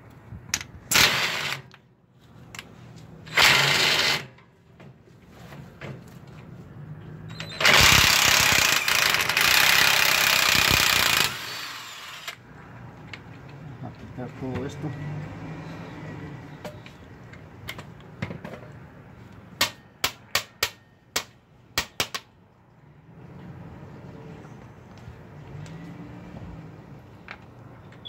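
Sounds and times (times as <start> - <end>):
impact wrench hammering: 19.6 - 22.2.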